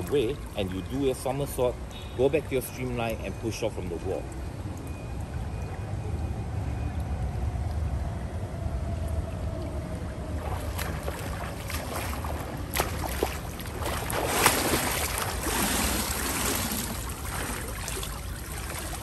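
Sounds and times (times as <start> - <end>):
low steady rumble: 0.0 - 19.0
water splashing from swimming strokes: 9.5 - 19.0.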